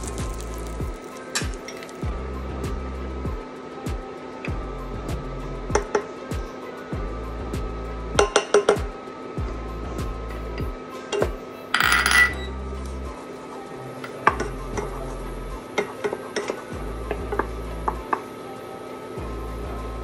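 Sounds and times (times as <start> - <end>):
glass dish clink: 11.8 - 12.5.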